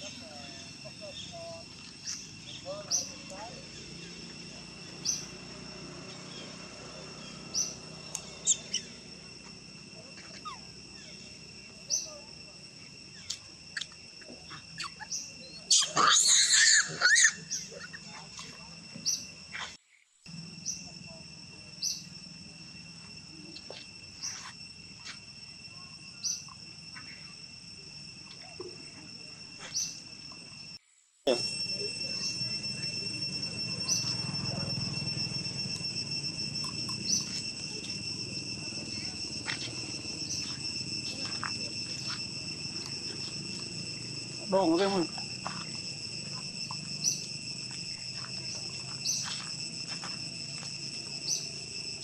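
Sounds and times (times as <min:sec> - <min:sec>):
bird chirping: 0:00.0 - 0:09.4, 0:10.1 - 0:12.2, 0:12.8 - 0:19.7, 0:21.7 - 0:22.2, 0:29.6 - 0:49.6, 0:51.1 - 0:52.0
high insect drone: 0:00.0 - 0:52.0.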